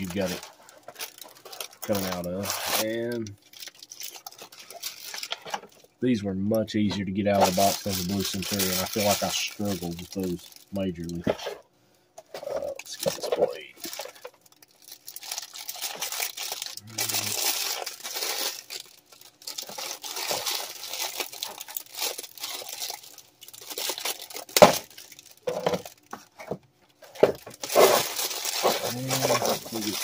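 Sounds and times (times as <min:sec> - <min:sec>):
paper wrapping crinkling and tearing: 0:00.0 - 0:05.9, 0:07.3 - 0:11.6, 0:12.3 - 0:30.0
sharp paper crack: 0:07.4 - 0:11.2, 0:12.9 - 0:26.0, 0:27.2 - 0:30.0.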